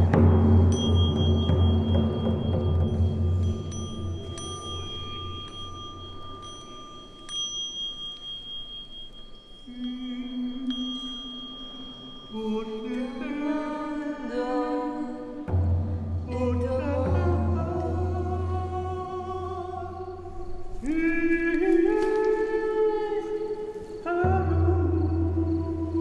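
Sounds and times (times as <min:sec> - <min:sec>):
metal singing bowl ringing: 0:00.0 - 0:14.4
person humming: 0:09.7 - 0:15.6, 0:16.2 - 0:26.0
frame drum low rumble: 0:15.4 - 0:19.6.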